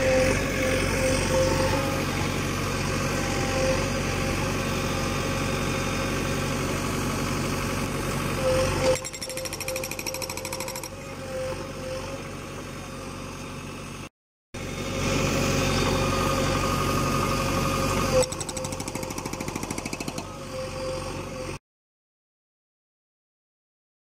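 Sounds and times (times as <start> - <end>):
diesel engine running: 0.0 - 21.6
hydraulic breaker hammering: 8.9 - 11.0, 18.2 - 20.4.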